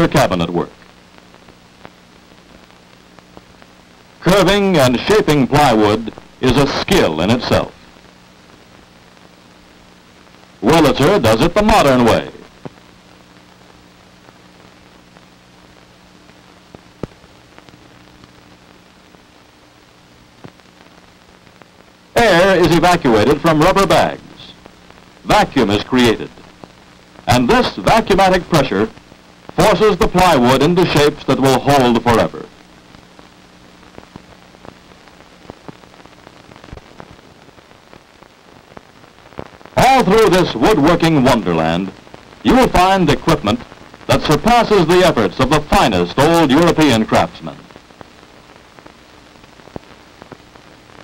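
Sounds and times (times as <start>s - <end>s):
film soundtrack hiss: 0.0s - 51.0s
clicks and pops: 16.7s - 17.8s.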